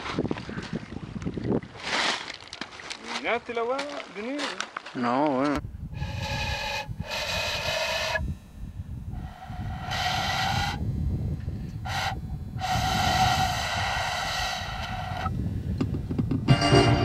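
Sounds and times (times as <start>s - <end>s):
wind rumbling on microphone: 0.0s - 2.1s, 5.5s - 17.0s
breathy cane flute notes: 5.9s - 15.4s.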